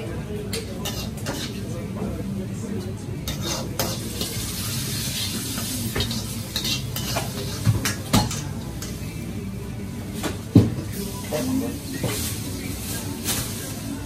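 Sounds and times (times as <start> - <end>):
ladle scraping wok: 0.8 - 1.7, 3.2 - 9.3
vegetables sizzling in wok: 3.2 - 9.3, 10.8 - 14.0.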